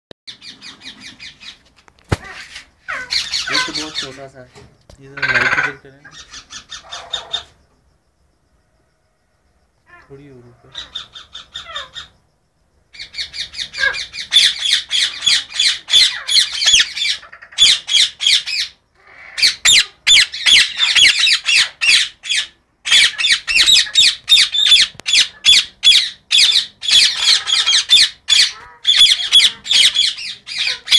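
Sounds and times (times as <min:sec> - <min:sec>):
parakeets squawking: 0:00.3 - 0:04.3, 0:05.2 - 0:07.5, 0:13.0 - 0:30.9.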